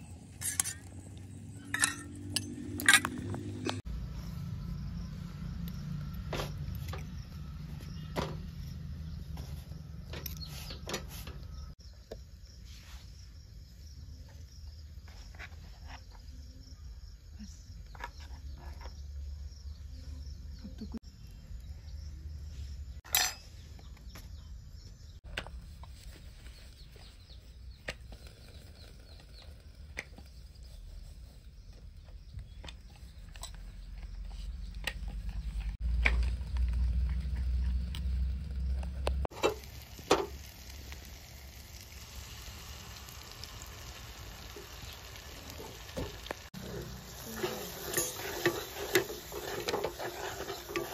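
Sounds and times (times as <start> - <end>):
spoon scraping glass bowl: 0.4 - 0.9, 1.7 - 2.1, 47.3 - 50.9
metal spoon clinking glass bowls: 1.6 - 3.2, 47.4 - 50.9
low outdoor rumble: 25.4 - 50.9.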